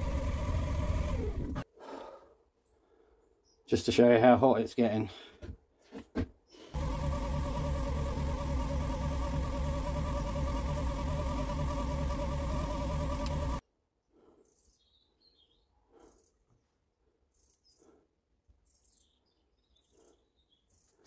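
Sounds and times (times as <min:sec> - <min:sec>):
motor buzzing whine: 0:00.0 - 0:01.6, 0:06.8 - 0:13.6.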